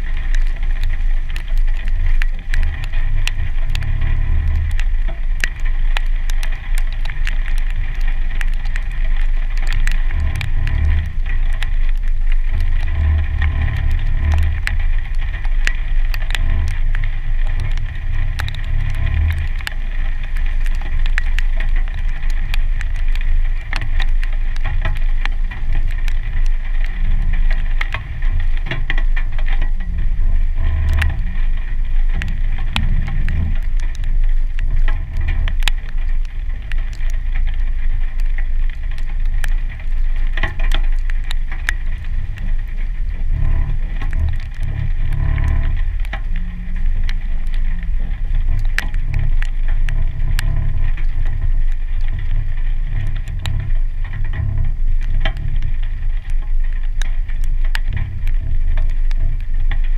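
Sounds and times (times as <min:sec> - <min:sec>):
engine low rumble: 0:00.0 - 0:59.9
water drops ticking on camera: 0:00.0 - 0:59.9.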